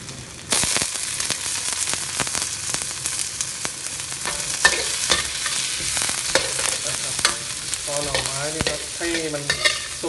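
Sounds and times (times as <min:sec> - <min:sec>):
food sizzling in a wok: 0:00.0 - 0:10.0
metal spatula clinking on wok: 0:04.3 - 0:05.6, 0:06.3 - 0:10.0.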